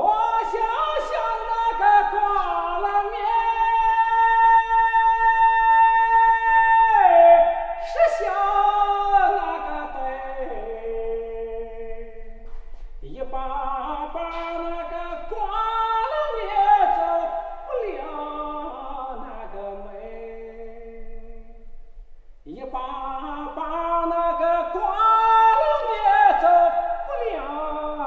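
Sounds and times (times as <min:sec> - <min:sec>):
man singing unaccompanied: 0:00.0 - 0:21.7, 0:22.4 - 0:28.0.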